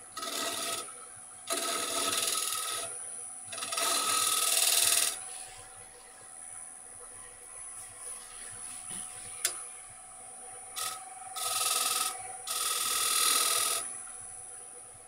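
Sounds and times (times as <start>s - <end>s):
tool scraping spinning wood: 0.0s - 0.9s, 1.5s - 5.4s, 10.8s - 13.9s
wood lathe whine: 0.0s - 5.5s, 10.7s - 14.0s.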